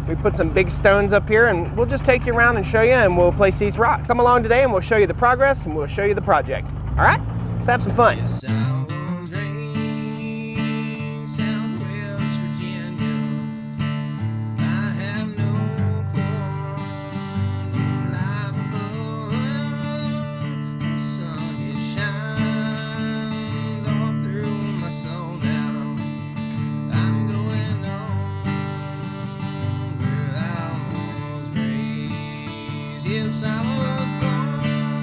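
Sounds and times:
strummed acoustic guitar: 0:00.0 - 0:35.0.

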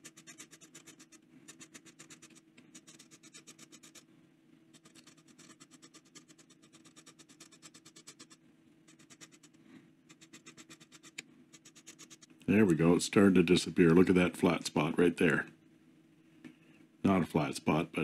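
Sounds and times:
pen nib scratching on abrasive: 0:00.0 - 0:04.1, 0:04.7 - 0:12.3.

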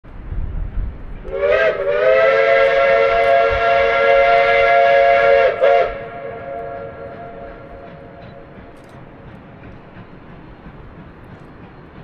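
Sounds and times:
steam locomotive whistle: 0:01.2 - 0:08.6.

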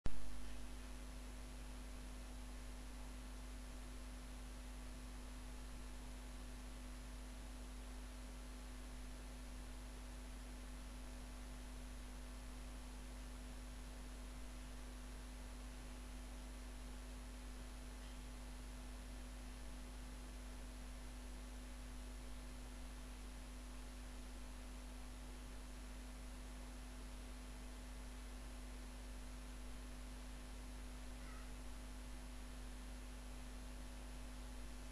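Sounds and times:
constant hiss: 0:00.1 - 0:34.9
faint steady tone: 0:00.1 - 0:34.9
low electrical hum: 0:00.1 - 0:34.9.

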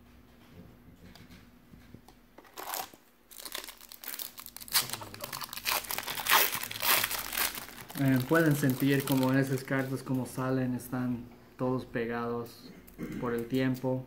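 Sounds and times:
foil wrapper tearing and crinkling: 0:02.5 - 0:09.7.

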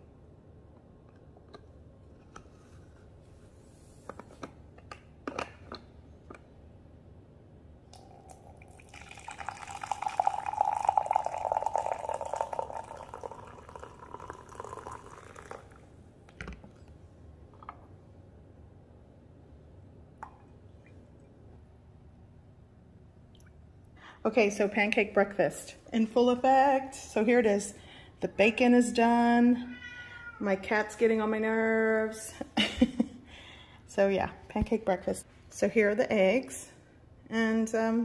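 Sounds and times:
coffee pouring into a mug: 0:08.0 - 0:16.0.

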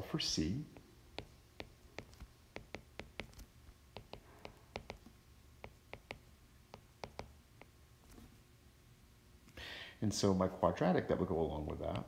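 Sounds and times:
stylus tapping on glass screen: 0:00.7 - 0:07.8.

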